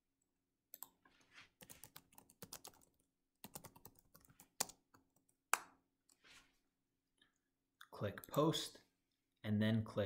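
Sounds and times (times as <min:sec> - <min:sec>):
typing on computer keyboard: 0:01.6 - 0:05.3.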